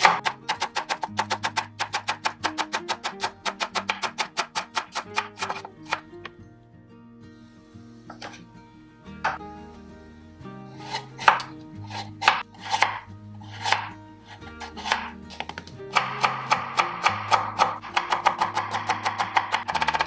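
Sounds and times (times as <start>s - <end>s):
knife cutting carrot on board: 0.0s - 6.2s, 8.1s - 8.4s, 10.8s - 20.0s
background music: 0.0s - 20.0s.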